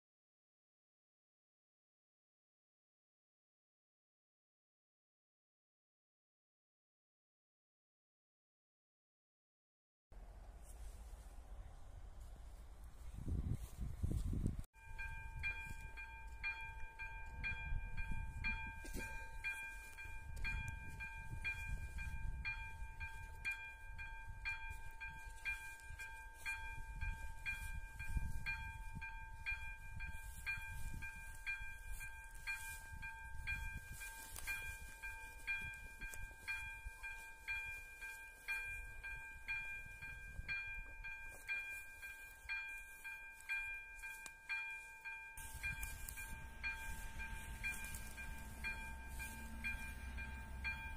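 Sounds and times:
level crossing electronic bell: 14.8 - 50.9.

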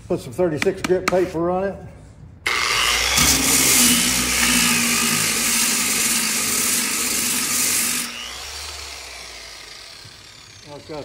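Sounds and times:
sander motor whine: 2.5 - 11.0.

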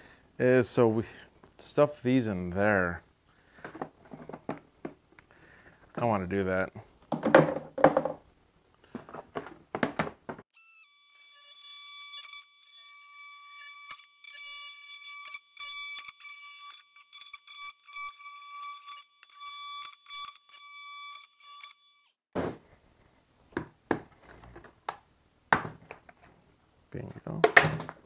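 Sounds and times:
rotary tool high-pitched whine: 10.6 - 22.2.

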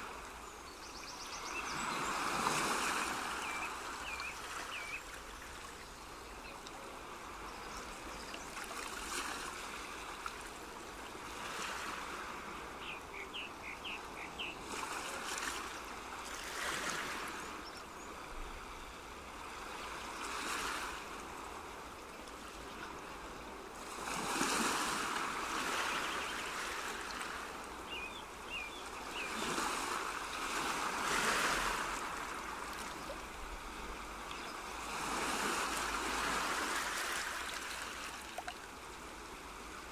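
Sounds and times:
rushing water: 1.4 - 17.7, 20.2 - 39.9.

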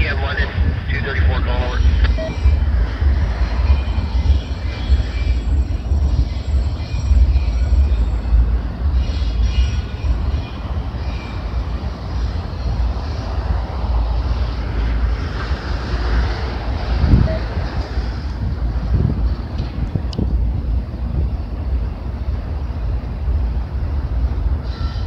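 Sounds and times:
train wheels rumbling on rails: 0.0 - 25.0
faint high squeals: 24.6 - 25.0.

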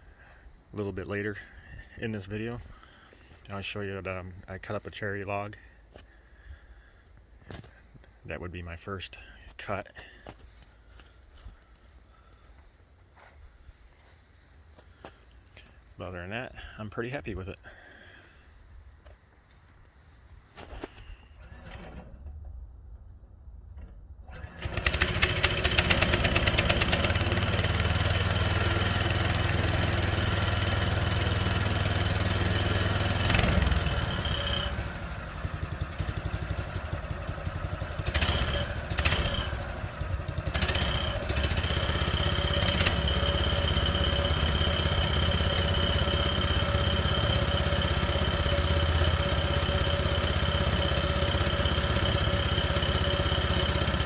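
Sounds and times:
gasoline engine running with whine: 23.8 - 54.0.

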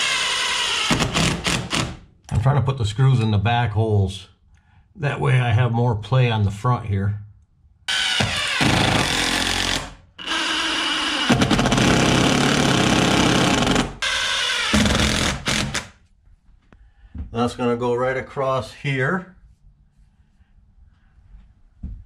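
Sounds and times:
cordless drill driving screws: 0.0 - 2.0, 7.9 - 15.9.

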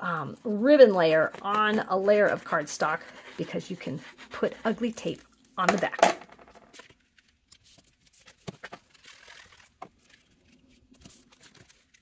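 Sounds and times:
paper rustle: 6.7 - 12.0.

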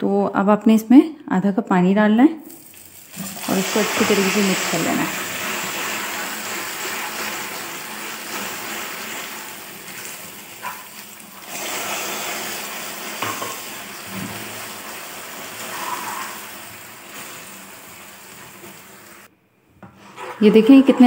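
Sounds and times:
sugar sizzling and bubbling: 2.4 - 19.3
water pouring: 2.4 - 19.3.

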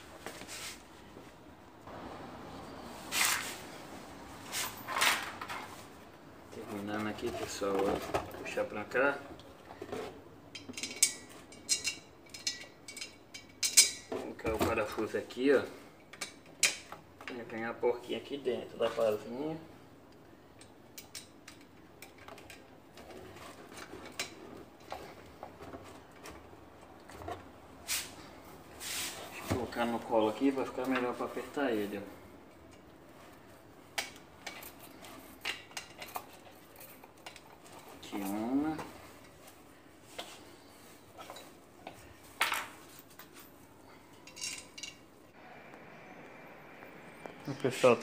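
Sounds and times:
clicks and clinks of parts handled: 9.4 - 15.0, 16.0 - 17.6, 20.1 - 26.4, 33.9 - 40.4, 41.1 - 45.1
ceiling fan parts clicking: 10.5 - 14.1, 20.0 - 27.6.

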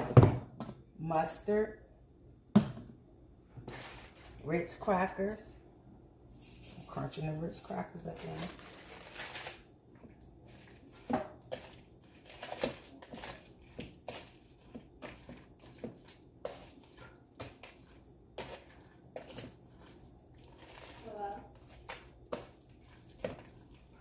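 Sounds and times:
crackers being crushed: 8.2 - 15.3.

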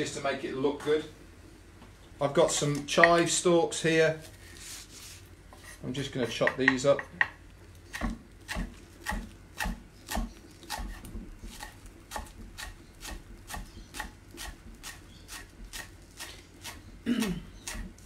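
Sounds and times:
knife chopping on wooden board: 6.3 - 18.0.

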